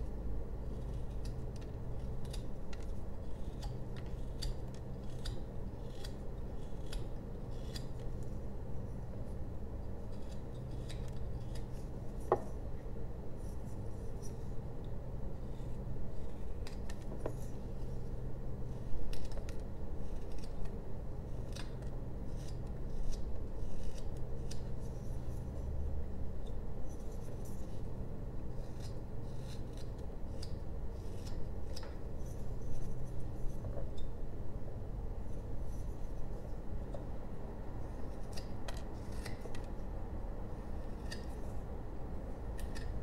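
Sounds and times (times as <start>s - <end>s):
knife carving wood: 0.4s - 12.6s, 15.4s - 25.7s, 26.4s - 34.1s, 37.8s - 39.8s, 40.6s - 41.8s, 42.4s - 43.0s.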